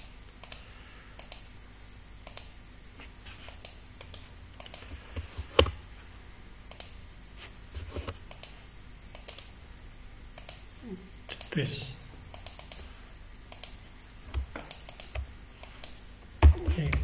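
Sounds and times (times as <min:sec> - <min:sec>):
mouse and keyboard clicks: 0:13.5 - 0:17.0.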